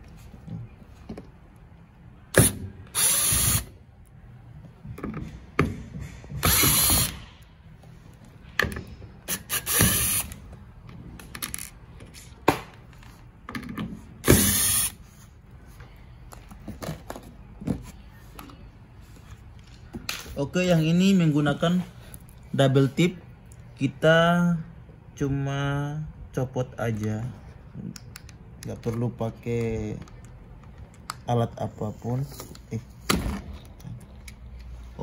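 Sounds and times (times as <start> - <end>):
electric drill spinning: 2.9 - 3.7, 6.4 - 7.1, 9.3 - 10.3, 14.3 - 14.9.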